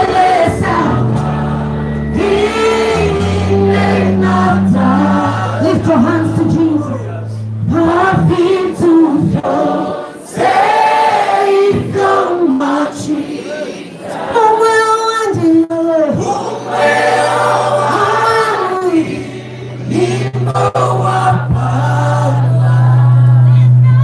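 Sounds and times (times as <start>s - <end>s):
steady low tone: 0.0s - 9.4s
congregation singing: 0.0s - 14.9s, 16.1s - 23.5s.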